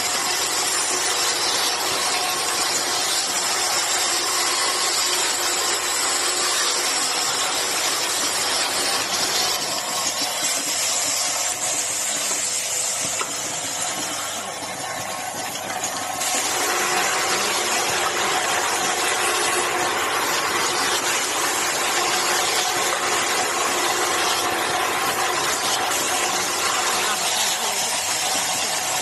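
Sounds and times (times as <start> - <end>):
machine hum and hiss: 0.0 - 29.0.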